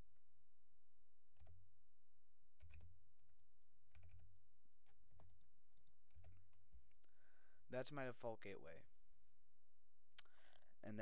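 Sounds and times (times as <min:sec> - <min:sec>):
keyboard keys tapping: 0:02.6 - 0:07.0.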